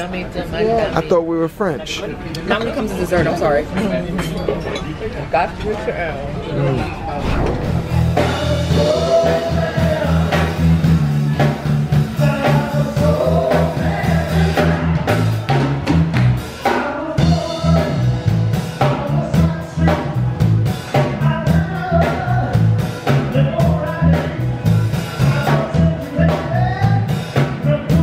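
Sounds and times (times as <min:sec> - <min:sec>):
pulsing bass line: 0:07.2 - 0:16.4
drum kit: 0:07.2 - 0:28.0
person singing: 0:08.1 - 0:15.1, 0:16.6 - 0:18.2, 0:20.9 - 0:24.5, 0:25.2 - 0:28.0.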